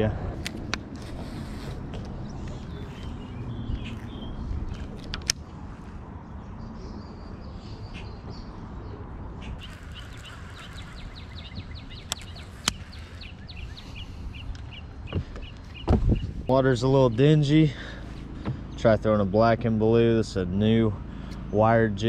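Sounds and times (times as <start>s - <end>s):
low outdoor rumble: 0.0s - 22.0s
small bird chirping: 2.2s - 5.0s, 6.5s - 16.5s
sharp clicks: 9.6s - 13.4s.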